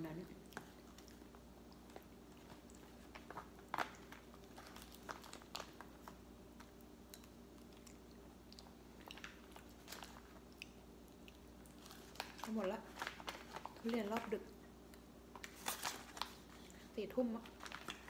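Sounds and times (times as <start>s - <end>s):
low steady hum: 0.0s - 18.0s
chewing: 0.3s - 13.8s
plastic crinkling: 1.9s - 6.7s, 9.0s - 10.4s, 11.7s - 14.5s, 15.3s - 18.0s.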